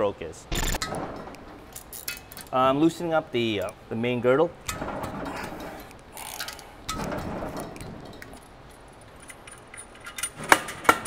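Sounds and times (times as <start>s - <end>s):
small metal clinks: 7.7s - 10.4s.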